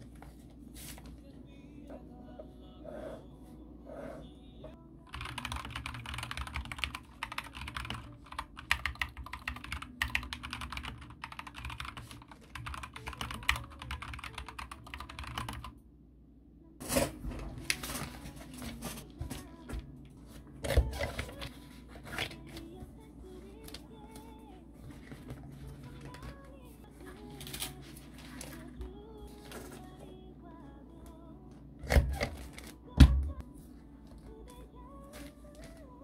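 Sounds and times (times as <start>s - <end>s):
low steady hum: 0.0s - 36.0s
typing on computer keyboard: 5.1s - 15.7s.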